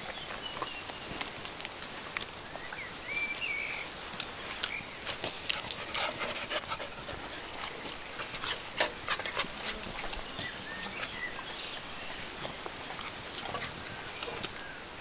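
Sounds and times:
paws scuffing on dry dirt: 0:00.0 - 0:14.8
puppy panting: 0:05.0 - 0:10.3, 0:12.8 - 0:14.4.

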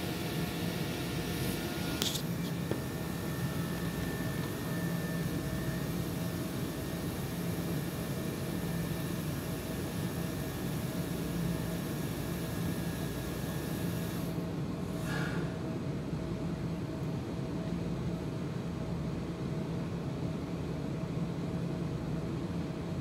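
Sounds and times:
low machine hum: 0:00.0 - 0:13.5.

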